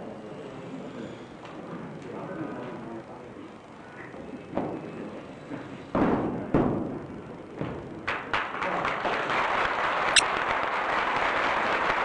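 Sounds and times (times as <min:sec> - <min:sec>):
audience applause: 0:08.7 - 0:12.0.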